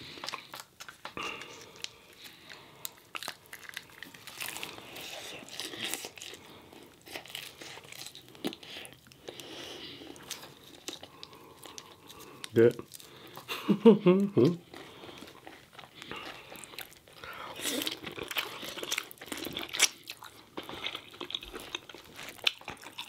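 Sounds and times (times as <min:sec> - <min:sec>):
crunchy chewing: 0:00.0 - 0:13.6, 0:14.6 - 0:23.0
paper packet crinkling: 0:00.1 - 0:08.3.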